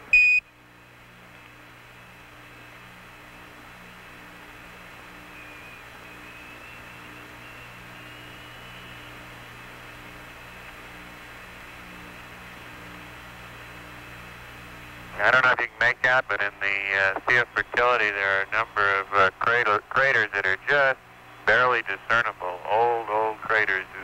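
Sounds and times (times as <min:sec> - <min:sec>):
electrical hum: 0:00.0 - 0:24.0
radio channel hiss: 0:01.7 - 0:24.0
faint high whistle: 0:05.3 - 0:09.2.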